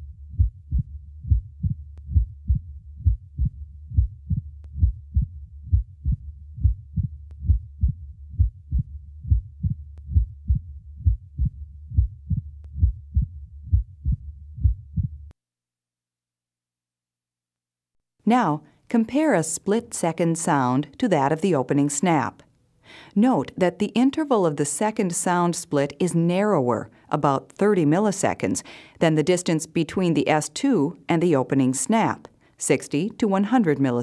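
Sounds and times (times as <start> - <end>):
low rumble: 0.0 - 15.3
heartbeat through stethoscope: 0.0 - 15.4.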